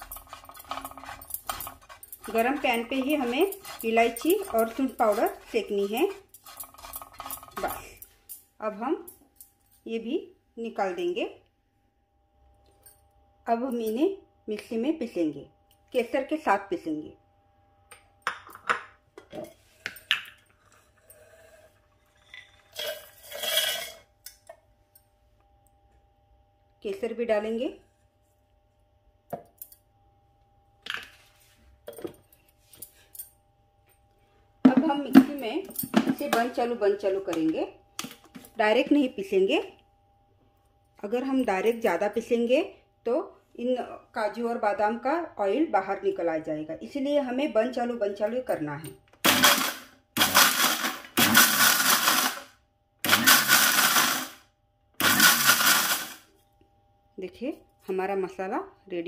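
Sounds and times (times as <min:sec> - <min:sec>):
electric mixer grinder grinding: 0:00.0 - 0:07.9, 0:49.3 - 0:54.4, 0:55.0 - 0:56.3
glass bowl clinking on metal jar: 0:00.0 - 0:07.9, 0:22.1 - 0:24.0.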